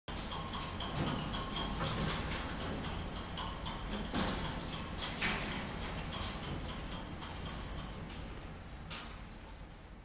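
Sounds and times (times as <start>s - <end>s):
marmoset whistled calls: 7.4s - 8.9s.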